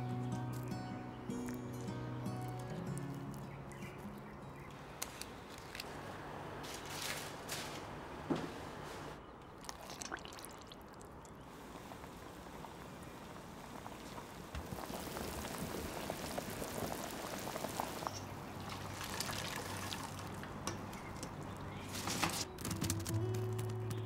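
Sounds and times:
water boiling in pot: 9.5s - 22.2s.

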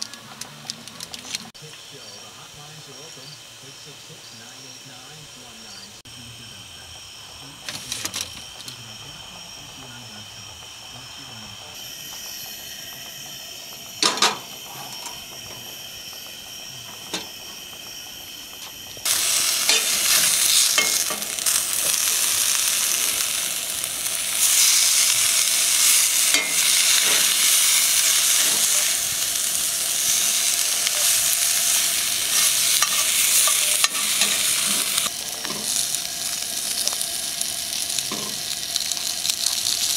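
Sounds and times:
fish sizzling in a skillet: 11.8s - 39.9s.

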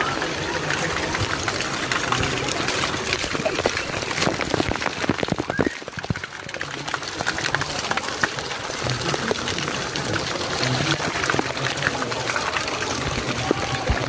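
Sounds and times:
small splashes and drips: 0.0s - 14.0s
water pouring: 0.0s - 14.0s.

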